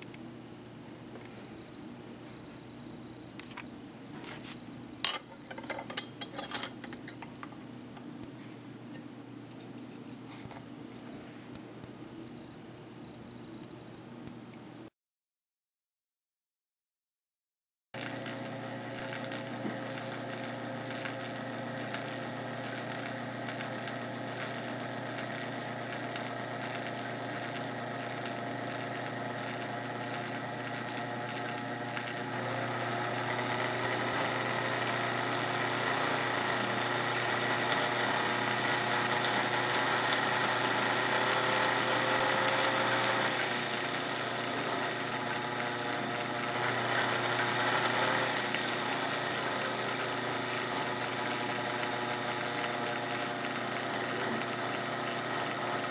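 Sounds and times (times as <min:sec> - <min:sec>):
sewing machine running: 0:18.6 - 0:55.9.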